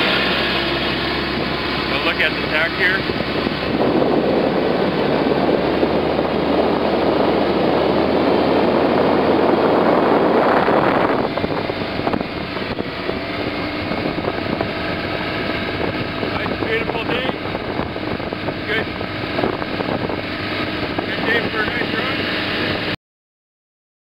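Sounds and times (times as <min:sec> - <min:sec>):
motorboat engine running: 0:00.0 - 0:23.0
rushing water: 0:00.0 - 0:23.0
wind: 0:00.0 - 0:23.0.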